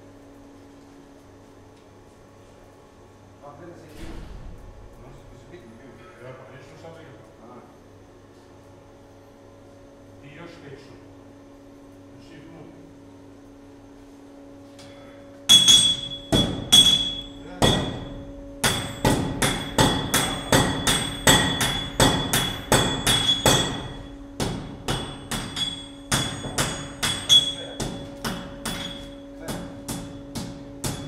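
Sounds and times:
hammer blows on anvil ringing: 0:15.5 - 0:31.0.

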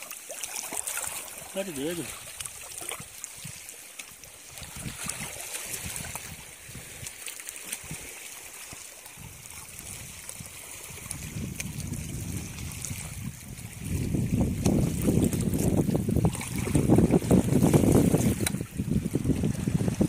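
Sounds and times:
feet wading through water: 0:00.0 - 0:20.0
seawater trickling and sloshing: 0:00.0 - 0:20.0
wind rumble on microphone: 0:04.4 - 0:07.2, 0:09.1 - 0:20.0.

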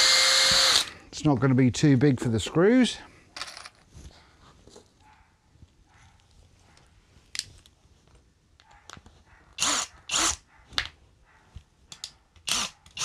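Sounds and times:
cordless drill drilling into wood: 0:00.0 - 0:01.0, 0:09.6 - 0:10.4, 0:12.5 - 0:13.0.

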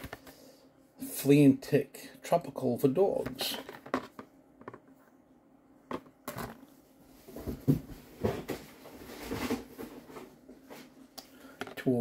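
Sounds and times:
packaging rustling and knocking: 0:03.3 - 0:04.8, 0:05.9 - 0:06.7.

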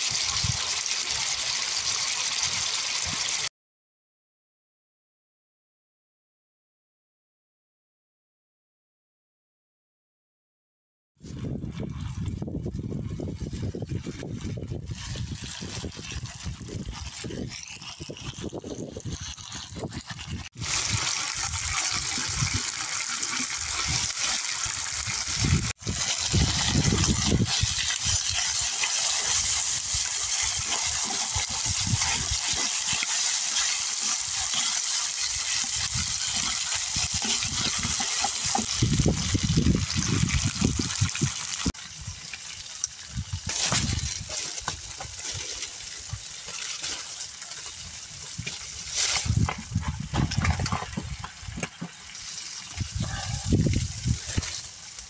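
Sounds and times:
water running and splashing: 0:00.0 - 0:03.5, 0:14.9 - 0:55.0.

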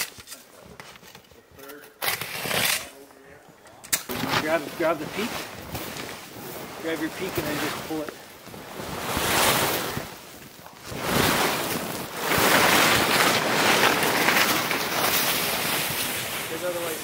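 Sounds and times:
canvas tent dragged over snow: 0:04.1 - 0:17.0.

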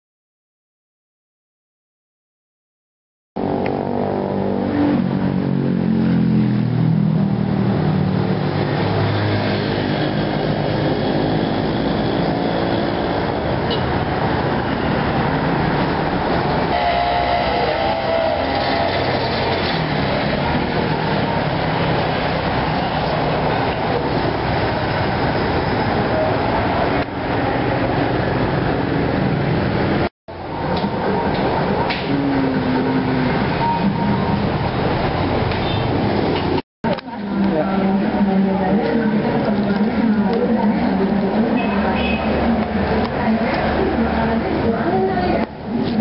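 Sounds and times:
vehicle engine passing by: 0:03.4 - 0:36.6
traffic noise: 0:03.4 - 0:46.0.

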